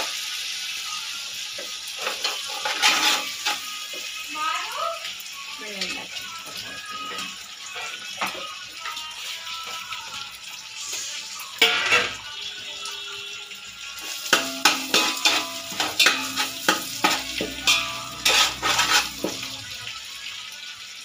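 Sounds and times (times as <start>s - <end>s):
metal spoon stirring in a pot: 1.9s - 4.1s, 5.8s - 9.1s, 11.6s - 12.3s, 14.0s - 20.0s
spoon knocking on a metal pot: 14.3s - 19.6s.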